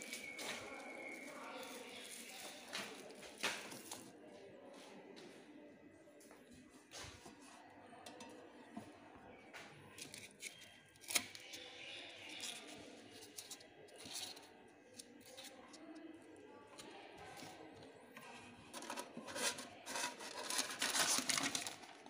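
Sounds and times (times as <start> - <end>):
plastic packing rustling: 19.4 - 22.0.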